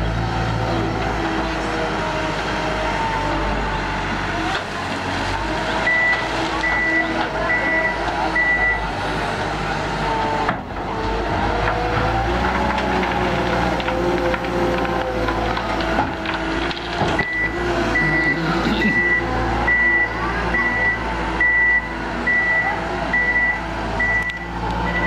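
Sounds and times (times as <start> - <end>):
wheel loader diesel engine: 0.0 - 25.0
reversing alarm beeps: 5.9 - 8.8, 17.2 - 25.0.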